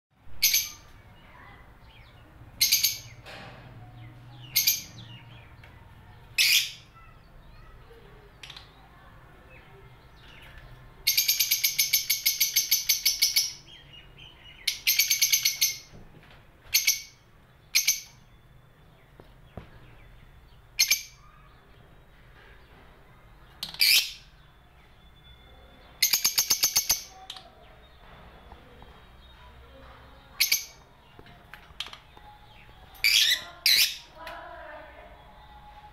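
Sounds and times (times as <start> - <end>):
lovebirds chattering chirps: 0.3 - 16.0, 16.6 - 35.9
lovebirds shrill calls: 23.6 - 24.4, 30.3 - 34.2.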